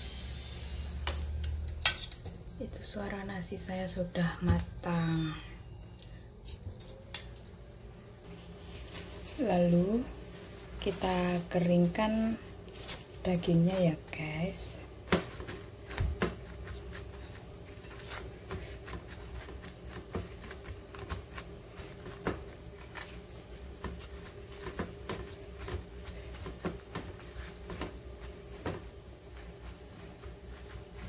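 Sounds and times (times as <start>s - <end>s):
faint steady hum: 0.0s - 31.0s
paper towels crinkling: 8.3s - 13.3s, 15.3s - 31.0s.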